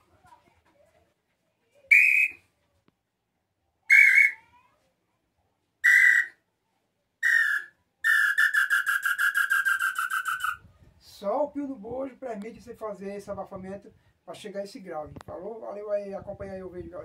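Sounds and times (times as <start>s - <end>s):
whistled bird call notes: 1.9s - 2.4s, 3.9s - 4.4s, 5.8s - 6.4s, 7.2s - 10.6s.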